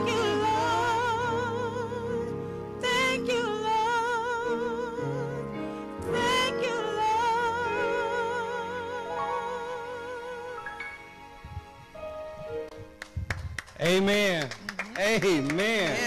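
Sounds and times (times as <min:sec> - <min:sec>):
woman singing gospel: 0:00.0 - 0:10.8
piano: 0:00.0 - 0:13.8.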